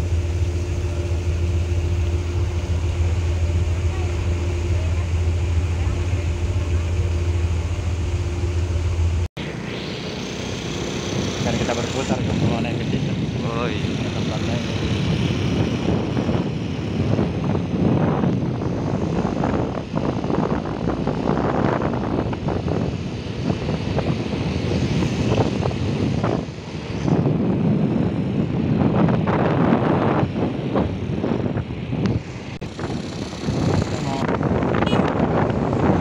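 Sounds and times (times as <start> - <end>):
vehicle engine and tyre rumble: 0.0 - 36.0
wind rushing over microphone: 0.0 - 36.0.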